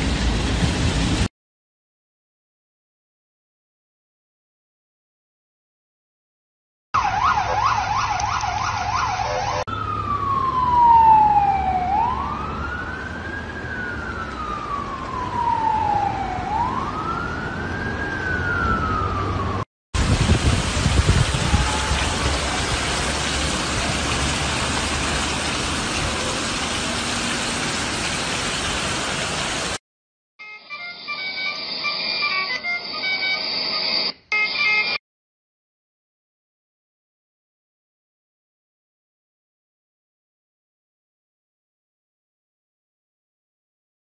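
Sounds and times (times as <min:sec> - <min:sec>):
heavy rain and floodwater: 0:00.0 - 0:01.3, 0:10.8 - 0:12.4, 0:20.0 - 0:29.8
emergency siren: 0:07.0 - 0:27.7, 0:30.4 - 0:35.0
low rumbles: 0:17.9 - 0:29.3.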